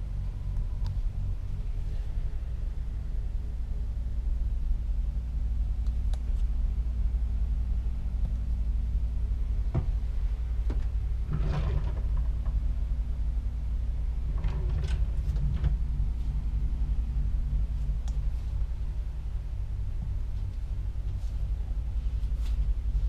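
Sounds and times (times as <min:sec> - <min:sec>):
low machinery hum: 0:00.0 - 0:23.0.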